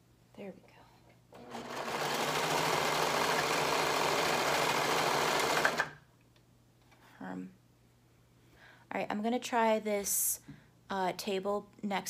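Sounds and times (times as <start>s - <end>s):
overlock machine stitching: 1.4s - 6.0s.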